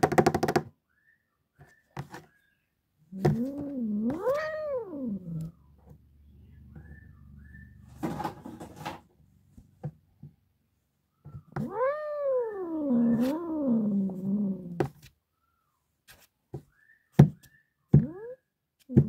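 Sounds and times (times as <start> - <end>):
cat yowling: 3.1 - 5.6, 11.5 - 14.9.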